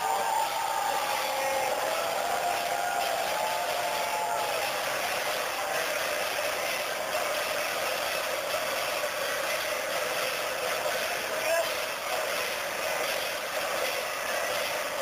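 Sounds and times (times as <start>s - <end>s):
dense crowd din: 0.0s - 15.0s.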